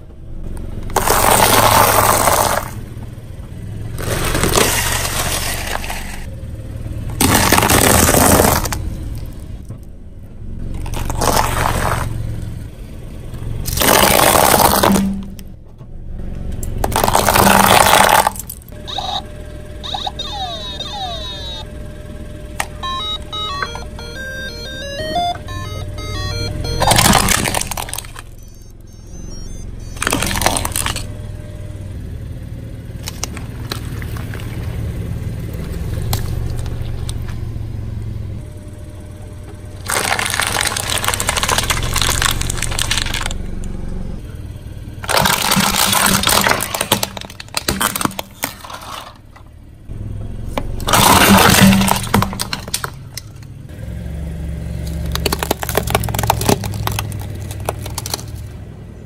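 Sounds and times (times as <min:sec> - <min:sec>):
tyre crushing plastic toys: 0:00.9 - 0:02.8, 0:03.9 - 0:06.3, 0:07.1 - 0:09.4, 0:10.7 - 0:12.2, 0:13.6 - 0:15.5, 0:16.8 - 0:19.2, 0:26.6 - 0:28.6, 0:29.3 - 0:31.1, 0:33.0 - 0:34.9, 0:39.8 - 0:43.4, 0:45.0 - 0:49.5, 0:50.8 - 0:53.5, 0:54.8 - 0:58.6.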